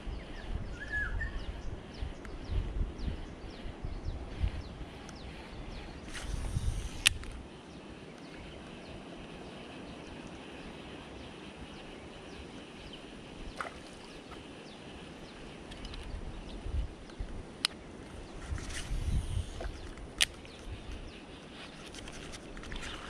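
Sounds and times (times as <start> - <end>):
faint high hum: 0.0 - 23.0
sharp click: 6.9 - 7.4.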